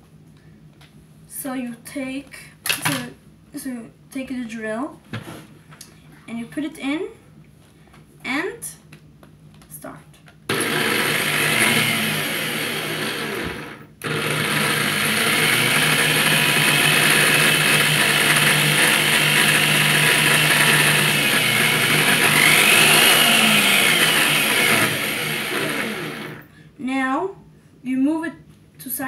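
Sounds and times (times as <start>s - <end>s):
electric drill drilling: 10.5s - 26.4s.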